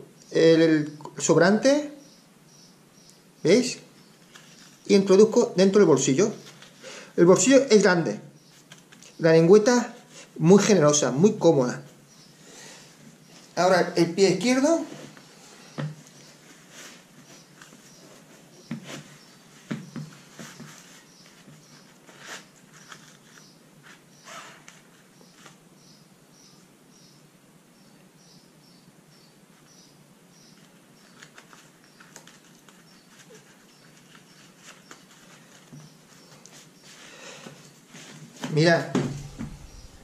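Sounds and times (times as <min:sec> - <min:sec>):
lace cord squeaking: 0:24.2 - 0:24.8
shoe rustling: 0:37.6 - 0:40.0.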